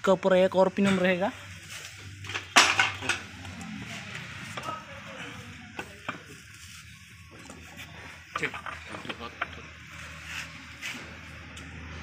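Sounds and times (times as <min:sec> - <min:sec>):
metal tools clanking: 0:02.2 - 0:03.4.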